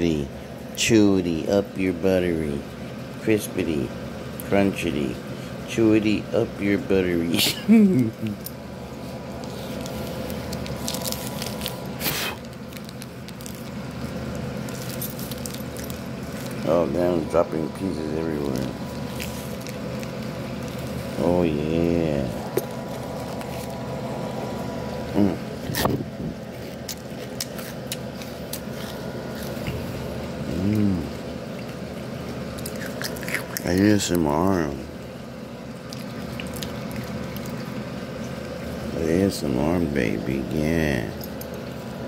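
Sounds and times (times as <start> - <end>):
low hum: 6.2 - 37.6
person humming: 7.4 - 8.4, 25.1 - 25.5, 30.5 - 31.2
crunching candy bar: 9.2 - 34.8, 35.7 - 39.4
plastic wrapper crackling: 9.4 - 16.7, 18.4 - 21.2, 22.6 - 24.0.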